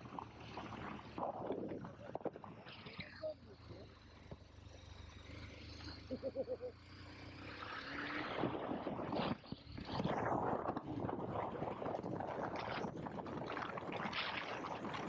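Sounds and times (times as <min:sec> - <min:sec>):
motorcycle engine running: 0:00.0 - 0:07.4.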